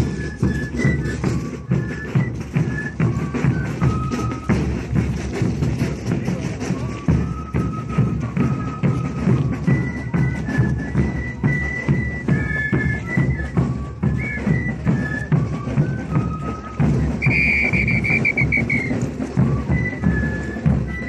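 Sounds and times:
high flute melody: 0.0s - 21.0s
trilled whistle blast: 9.9s - 19.0s.

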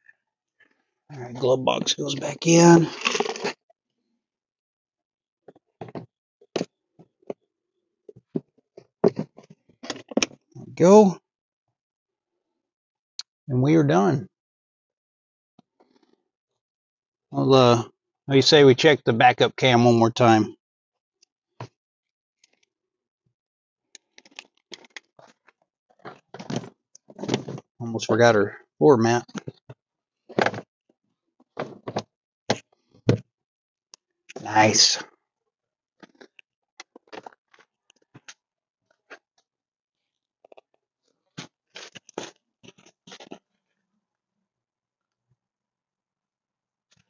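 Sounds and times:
rubber mat scraping and crackling: 2.8s - 3.6s.

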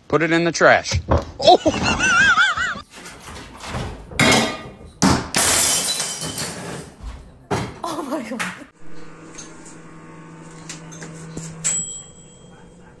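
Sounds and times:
glass shattering on a floor: 4.2s - 7.0s.

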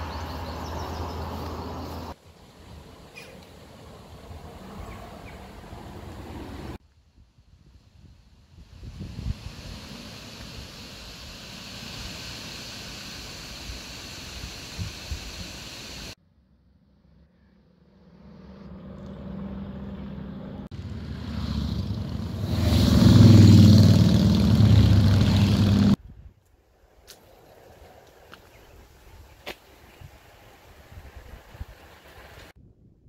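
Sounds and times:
vehicle engine hum: 0.0s - 6.8s, 9.5s - 26.0s
steady outdoor hiss: 0.0s - 16.2s, 20.7s - 32.6s.

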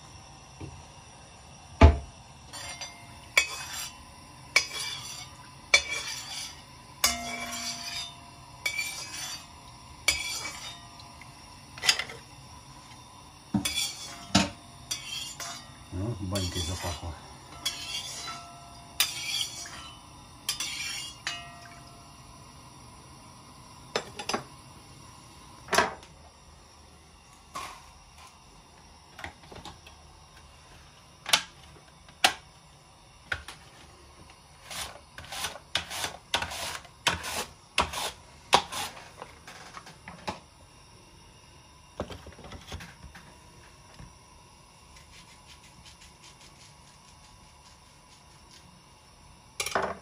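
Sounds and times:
metal cookware clinking: 2.5s - 4.0s, 4.6s - 9.5s, 10.1s - 11.1s, 11.8s - 12.2s, 13.6s - 15.8s, 16.4s - 21.9s.

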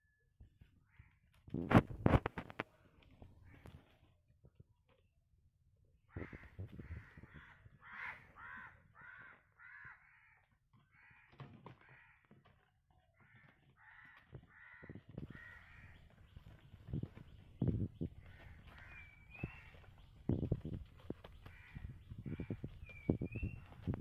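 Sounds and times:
crows cawing: 6.1s - 12.4s, 13.2s - 16.2s, 18.2s - 19.9s, 21.4s - 23.0s.

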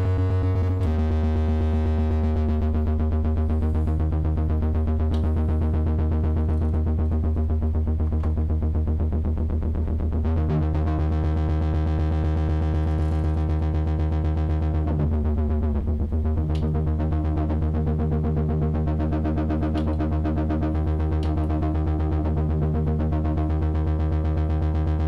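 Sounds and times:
pulsing distorted synthesizer chords: 0.0s - 25.0s.

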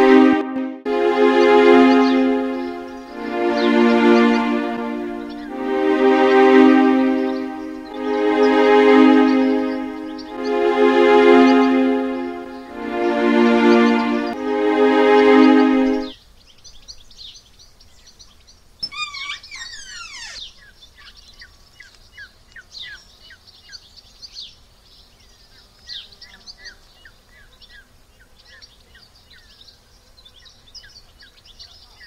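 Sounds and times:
birds chirping: 1.8s - 5.7s, 7.0s - 12.8s, 16.0s - 32.0s
bird call falling in pitch: 18.8s - 20.6s.

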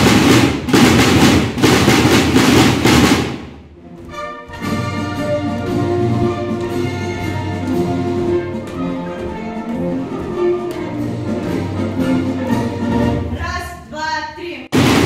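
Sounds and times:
snare drums rolling: 0.0s - 3.7s, 14.7s - 15.0s
orchestral music: 1.9s - 13.6s.

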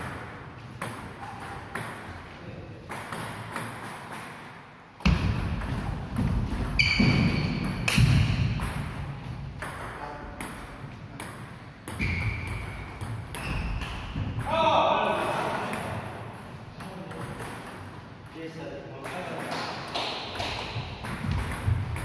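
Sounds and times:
short high squeak: 6.8s - 7.5s.

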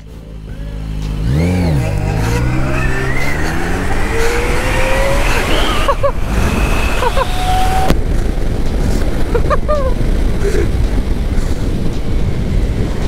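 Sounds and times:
engine rev: 0.0s - 9.0s
electric motor whine: 1.2s - 8.0s
rushing wind noise: 1.3s - 13.0s.

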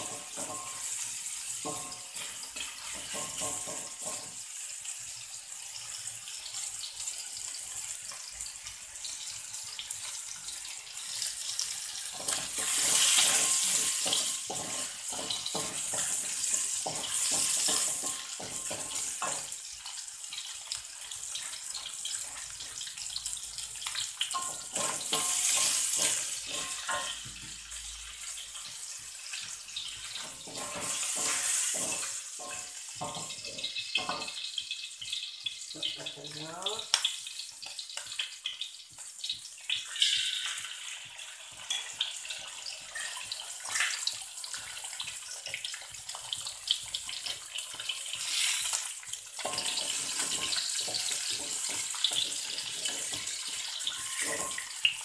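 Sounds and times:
shallots sizzling in hot oil: 0.0s - 55.0s
wooden spatula scraping a wok: 12.0s - 19.5s, 24.3s - 27.3s, 30.1s - 33.7s, 49.4s - 54.8s.

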